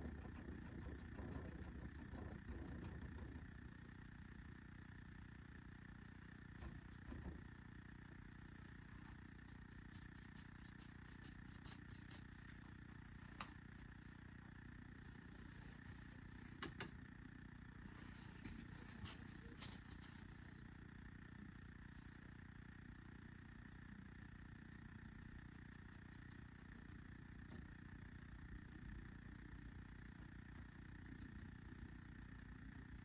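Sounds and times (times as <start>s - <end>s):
low room hum: 0.0s - 33.0s
faint clicks and taps: 9.5s - 13.8s, 16.5s - 17.0s.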